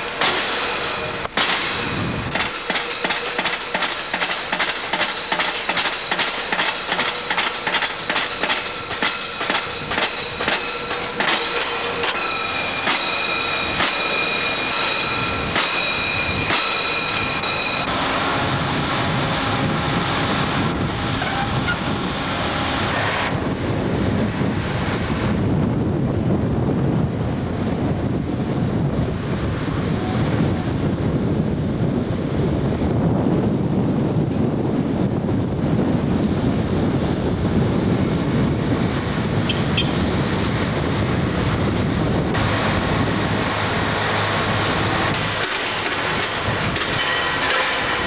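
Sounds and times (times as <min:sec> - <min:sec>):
pile driver hammer blows: 0:00.0 - 0:17.9, 0:43.9 - 0:48.0
windy rumble: 0:00.0 - 0:48.0.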